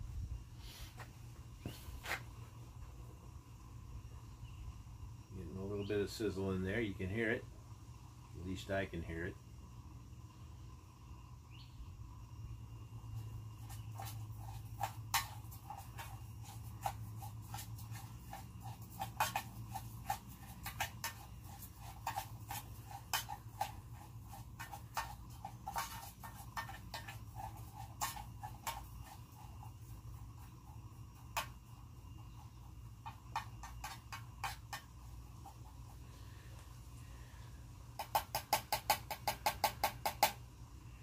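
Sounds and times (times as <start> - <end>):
low steady hum: 0.0 - 38.0
oil sizzling and popping: 13.2 - 35.7.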